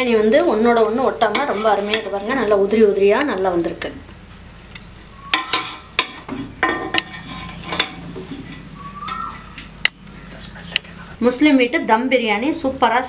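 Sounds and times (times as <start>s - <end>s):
metal skimmer scraping pot: 1.1s - 2.3s, 5.2s - 9.6s.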